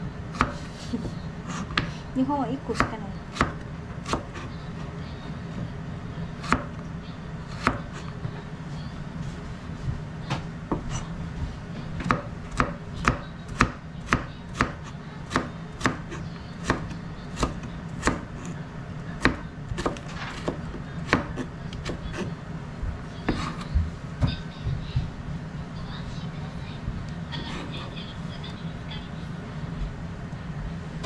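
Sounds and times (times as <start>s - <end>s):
knife chopping on cutting board: 12.0s - 18.5s, 19.2s - 22.3s, 23.3s - 24.4s.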